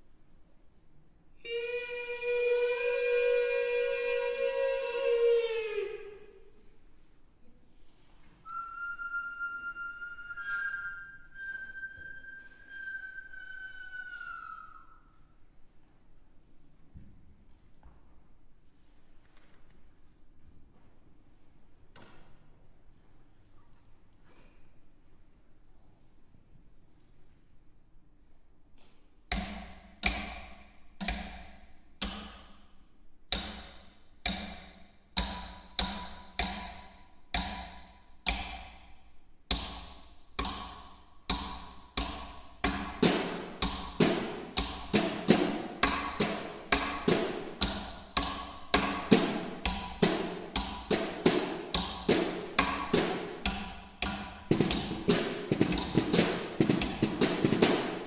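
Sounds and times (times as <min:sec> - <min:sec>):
snare drum strikes: 0:39.5 - 0:58.0.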